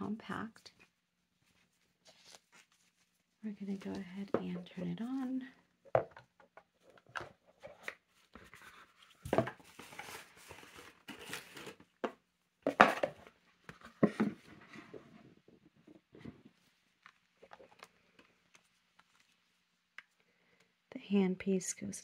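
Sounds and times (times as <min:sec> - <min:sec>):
paper and cardboard rustling: 0:00.6 - 0:05.5, 0:06.7 - 0:12.1.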